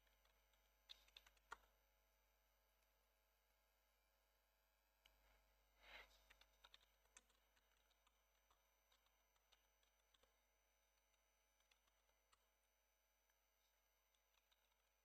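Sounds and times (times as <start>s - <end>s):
keyboard typing: 0.0s - 1.7s, 6.0s - 12.5s, 13.3s - 15.0s.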